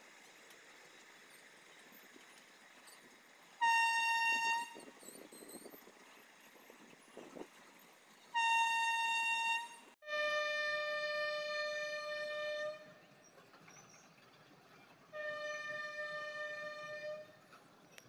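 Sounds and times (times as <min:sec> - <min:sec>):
locomotive horn blasts: 0:03.6 - 0:05.0, 0:08.3 - 0:13.0, 0:15.1 - 0:17.4.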